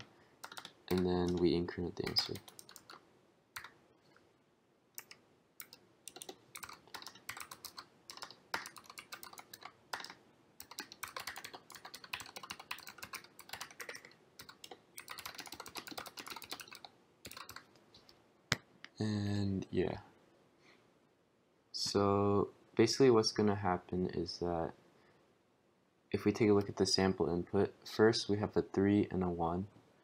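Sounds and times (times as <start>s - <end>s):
typing on a keyboard: 0.0s - 3.0s, 5.0s - 17.7s.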